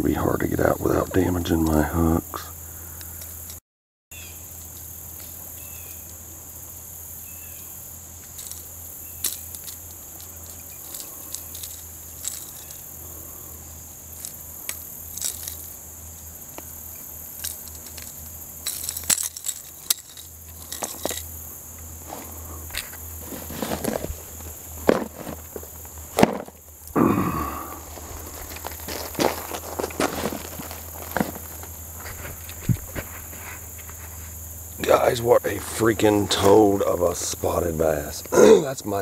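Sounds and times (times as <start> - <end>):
knocks and gravel crunching: 0.0 - 2.5, 8.2 - 39.0
high-pitched insect chorus: 0.0 - 39.0.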